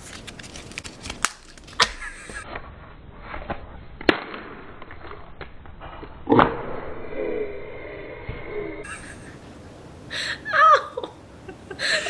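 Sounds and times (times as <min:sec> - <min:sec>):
egg cracking on head: 0:00.2 - 0:02.2.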